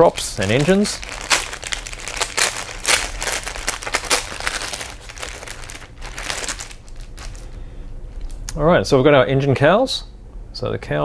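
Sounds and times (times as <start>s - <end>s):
plastic bag crinkling: 0.0s - 8.4s.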